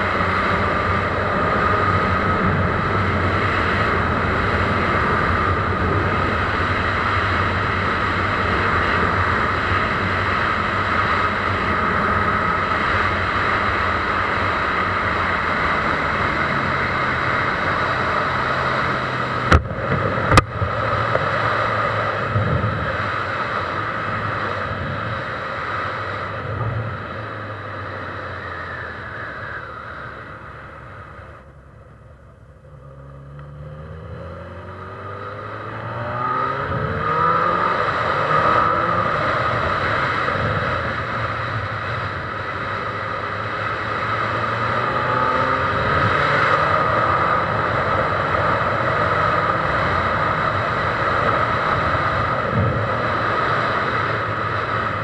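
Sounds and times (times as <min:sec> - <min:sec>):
motorcycle engine running: 0:00.0 - 0:55.0
riding wind rushing: 0:35.5 - 0:55.0.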